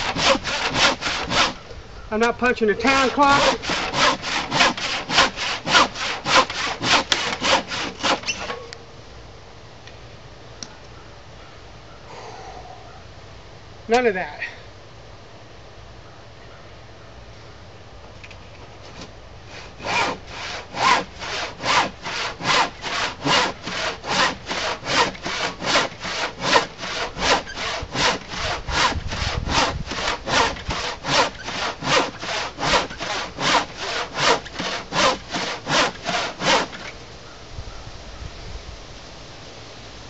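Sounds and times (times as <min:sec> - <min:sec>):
handsaw cutting through wood: 0:00.0 - 0:01.6, 0:02.8 - 0:08.6, 0:19.0 - 0:37.0.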